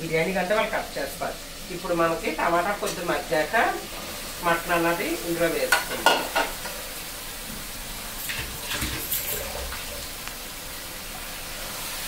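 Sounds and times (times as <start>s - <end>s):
meat sizzling in a hot pan: 0.0s - 12.0s.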